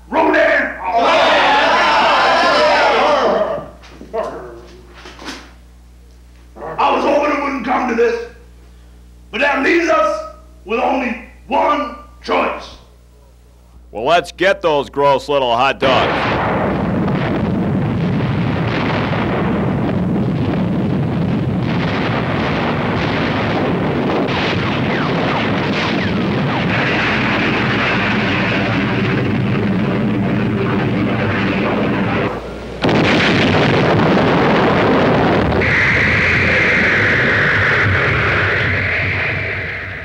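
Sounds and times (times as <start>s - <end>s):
blast rumble: 15.8s - 40.0s
artillery fire and explosions: 15.9s - 40.0s.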